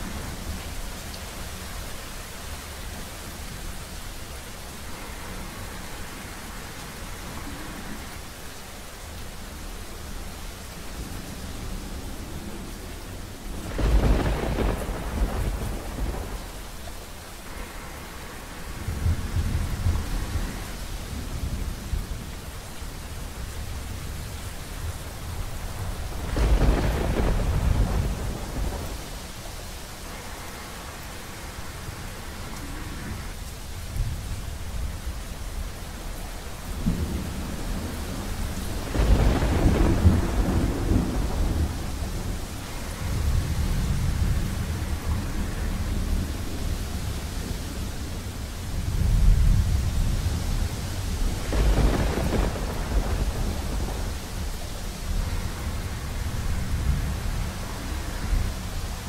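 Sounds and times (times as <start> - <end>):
heavy rain: 0.0 - 59.0
thunder rumbling: 11.6 - 17.0, 24.8 - 29.4, 36.4 - 59.0.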